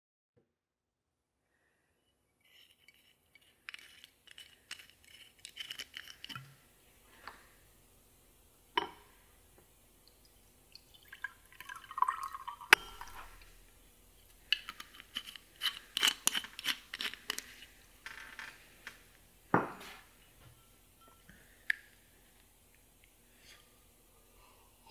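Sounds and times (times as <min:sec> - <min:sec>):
liquor pouring into glass: 0:10.1 - 0:13.6.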